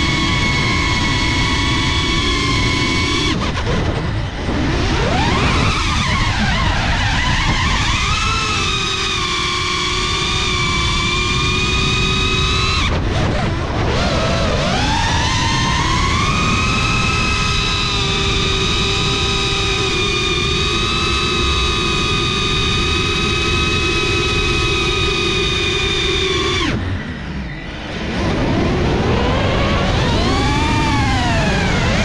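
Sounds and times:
drone propellers whining: 0.0 - 32.0
wind noise: 0.0 - 32.0.

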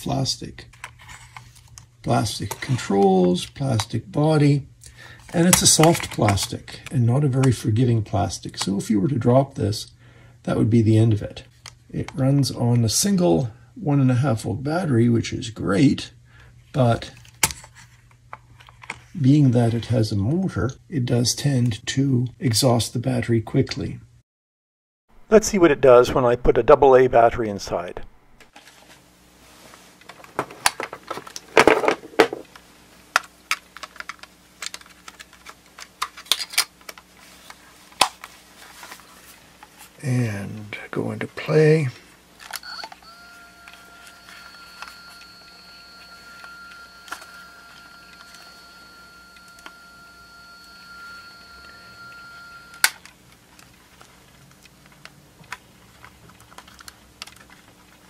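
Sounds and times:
plastic cassette player clicks and rattles: 33.2 - 37.0
tape motor whining: 42.6 - 53.0.

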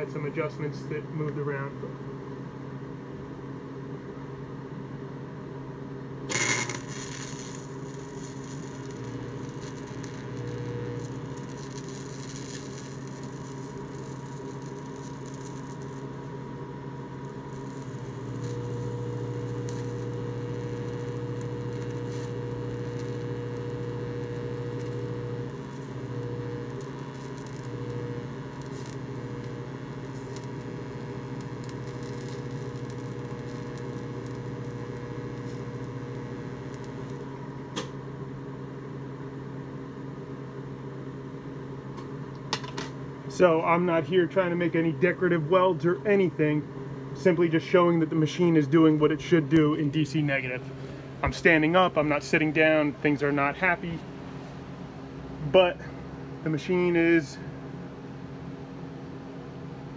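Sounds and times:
welder humming: 0.0 - 4.4, 6.2 - 59.9
loud welding crackle: 6.3 - 37.9.

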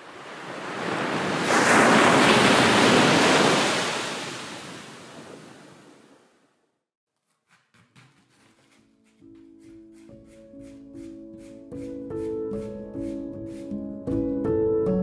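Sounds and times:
wave washing onto beach: 0.0 - 6.2.

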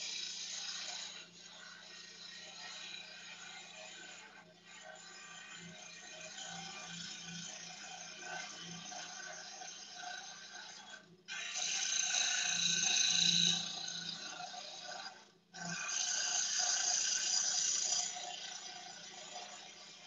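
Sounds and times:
wood lathe motor humming: 0.0 - 3.4, 11.3 - 15.2, 15.8 - 20.0.

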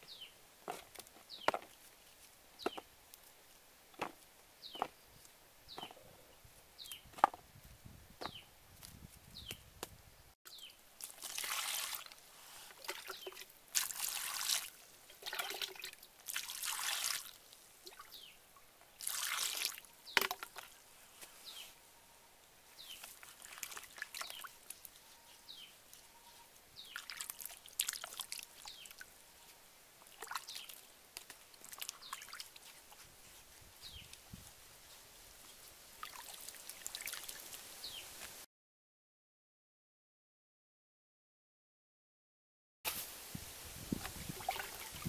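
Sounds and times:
water splashing in a plastic bowl: 11.0 - 18.1, 19.0 - 20.7, 23.0 - 24.6, 26.9 - 29.0, 30.0 - 32.7, 36.0 - 37.6, 44.0 - 45.0.

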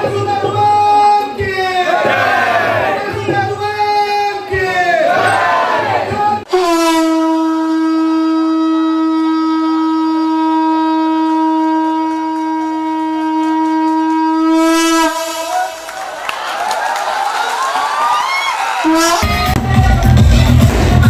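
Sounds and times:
conch shell blown: 6.5 - 16.0, 18.8 - 19.5.

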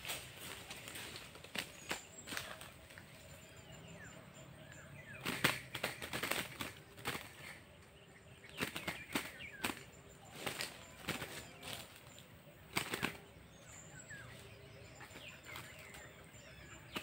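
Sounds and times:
bird wings flapping: 0.0 - 3.0, 5.1 - 7.7, 8.5 - 13.3, 15.0 - 16.2
faint bird chirps: 0.0 - 17.0.

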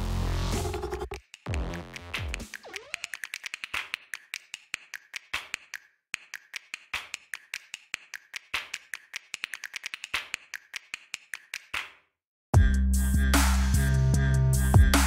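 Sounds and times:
rhythmic electronic clicks: 0.5 - 5.0.

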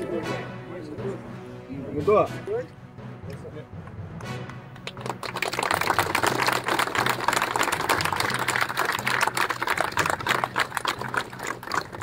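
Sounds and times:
crowd clapping: 3.8 - 12.0.

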